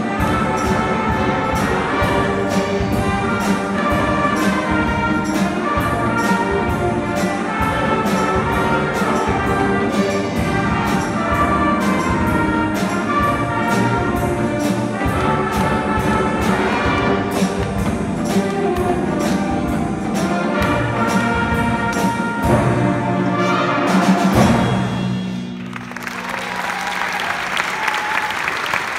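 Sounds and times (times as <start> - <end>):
concert band playing: 0.0 - 28.9
audience applause: 25.6 - 28.9.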